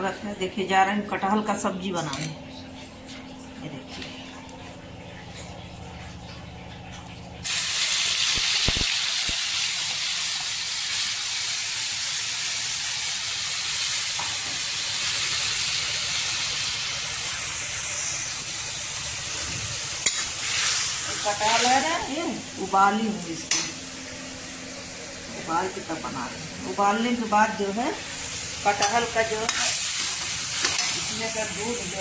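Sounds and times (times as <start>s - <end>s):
hot oil sizzling: 7.4s - 32.0s.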